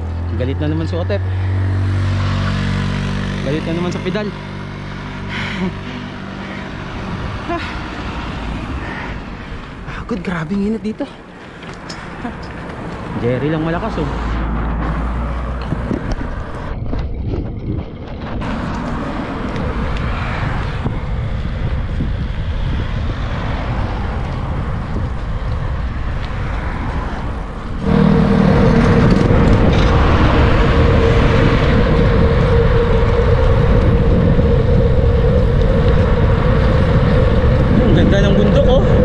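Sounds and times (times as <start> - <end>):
wind rushing over microphone: 0.0 - 10.1, 11.8 - 39.0
road and traffic noise: 0.0 - 39.0
steady hum: 27.8 - 37.9.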